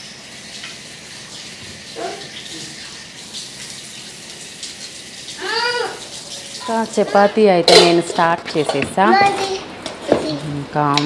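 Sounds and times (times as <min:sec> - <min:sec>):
tap water running into sink: 0:00.0 - 0:10.4
child's voice: 0:05.4 - 0:06.0, 0:09.0 - 0:10.4.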